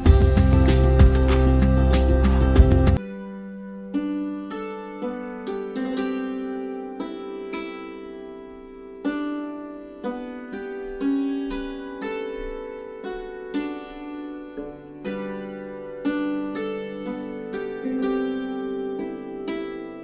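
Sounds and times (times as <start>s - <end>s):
slow keyboard-like melody: 0.0s - 20.0s.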